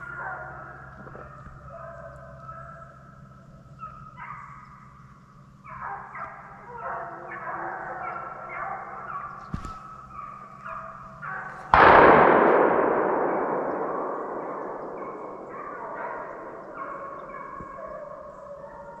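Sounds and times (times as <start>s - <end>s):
hounds baying: 0.0s - 19.0s
gunshot: 11.7s - 17.8s.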